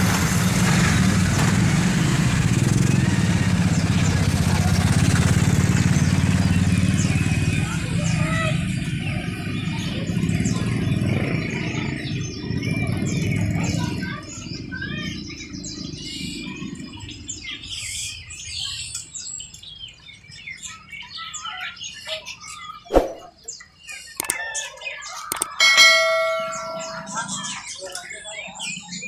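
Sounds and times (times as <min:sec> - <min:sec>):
caged birds chirping: 0:00.1 - 0:29.0
sharp knock: 0:22.9 - 0:23.3.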